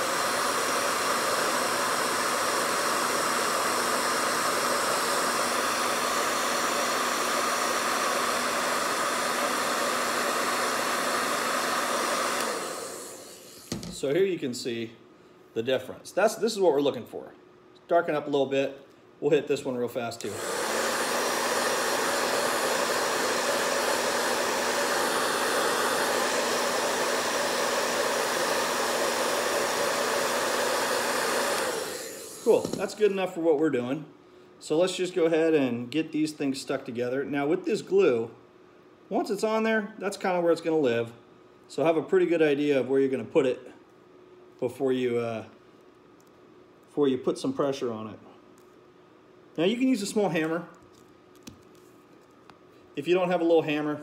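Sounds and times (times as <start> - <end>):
hair dryer running: 0.0 - 14.1, 20.2 - 33.7.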